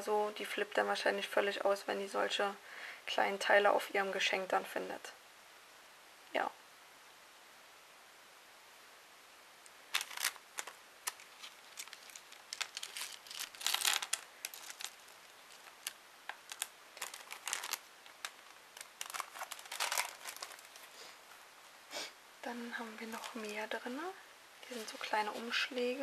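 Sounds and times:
packaging crinkling: 0:09.7 - 0:21.0, 0:23.0 - 0:23.6.

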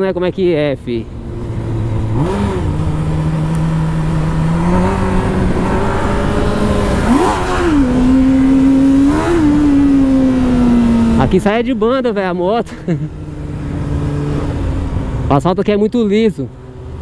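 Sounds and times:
motorcycle engine revving: 0:01.1 - 0:15.4.

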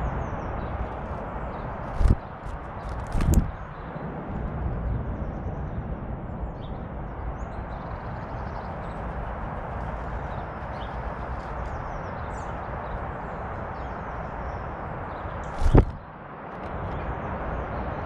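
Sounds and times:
small birds chirping: 0:00.0 - 0:04.1, 0:06.4 - 0:16.1
outdoor background rumble and hiss: 0:00.0 - 0:18.0.

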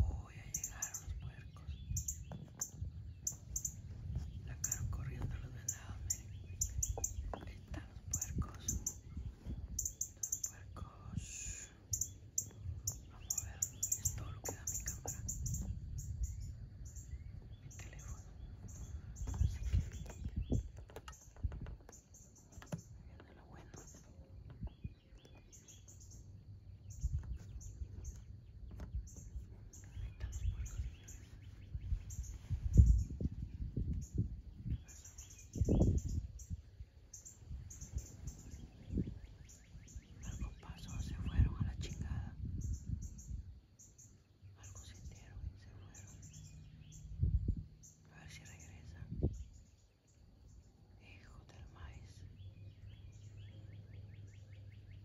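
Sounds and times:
birds chirping: 0:00.0 - 0:55.0
low rumble on microphone: 0:00.0 - 0:55.0
soft knocks and clicks: 0:19.2 - 0:25.5.

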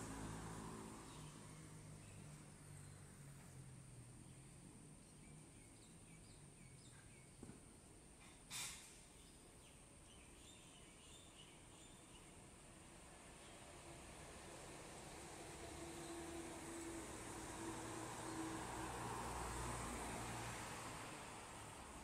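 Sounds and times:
short hiss: 0:08.5 - 0:09.1.

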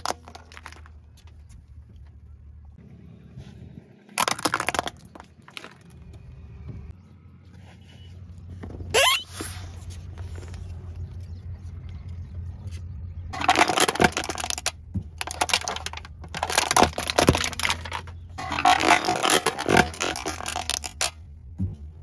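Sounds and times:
drinks cans crunching under tyre: 0:00.0 - 0:01.6, 0:04.1 - 0:06.1, 0:13.3 - 0:21.8.

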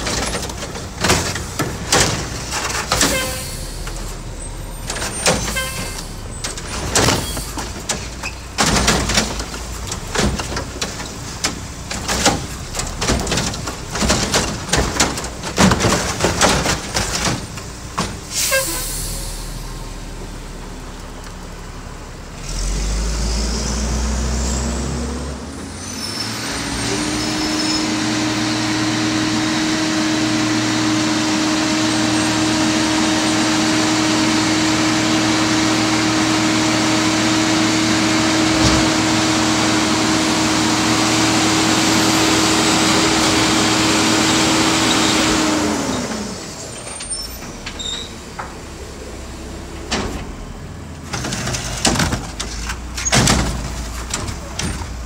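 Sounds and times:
garbage truck engine revving: 0:00.0 - 0:55.0
metallic clanks and knocks: 0:04.8 - 0:18.3.

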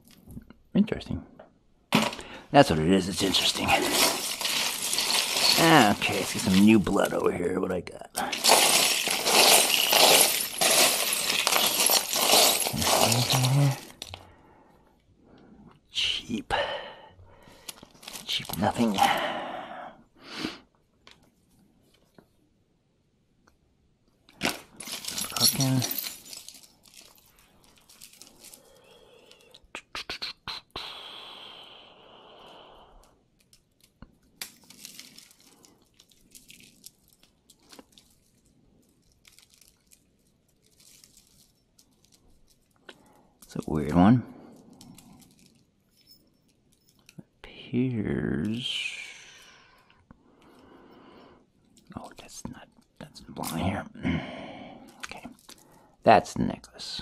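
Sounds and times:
jewelry clinking and rustling: 0:01.9 - 0:02.3, 0:03.1 - 0:07.3, 0:08.2 - 0:14.2, 0:17.7 - 0:19.2, 0:24.3 - 0:29.7, 0:33.2 - 0:47.4, 0:54.9 - 0:56.0.

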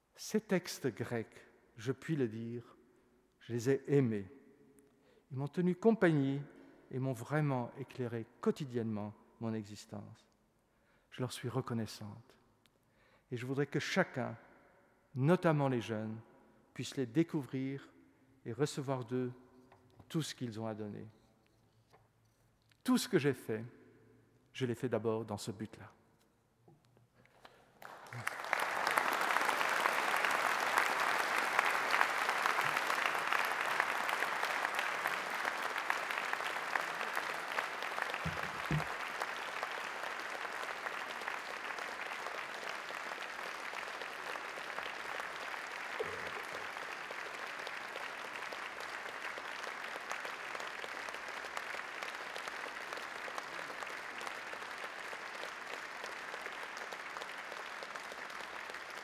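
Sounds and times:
audience applauding: 0:27.4 - 0:59.0.

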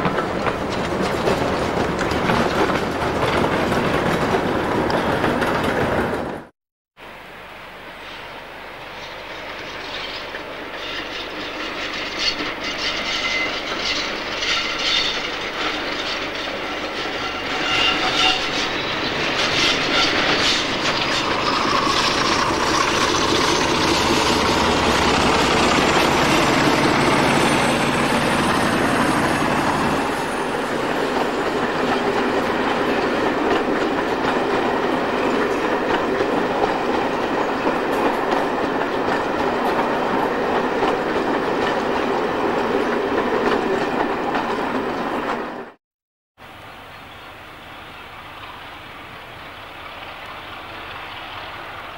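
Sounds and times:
wheel clicks over rail joints: 0:00.0 - 0:06.4
diesel locomotive engine rumble: 0:08.3 - 0:45.7
wheel squeal: 0:09.0 - 0:30.4.

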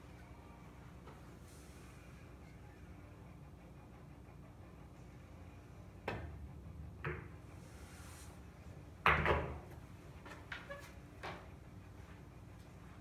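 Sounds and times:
pool balls knocking: 0:07.0 - 0:07.4, 0:09.0 - 0:09.8.

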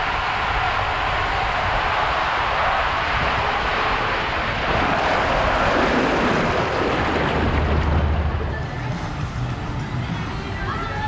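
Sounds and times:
wind on microphone: 0:00.0 - 0:09.4
rushing water: 0:00.0 - 0:10.1
raft sliding down water slide: 0:00.4 - 0:09.6
low rumble: 0:03.0 - 0:10.3.

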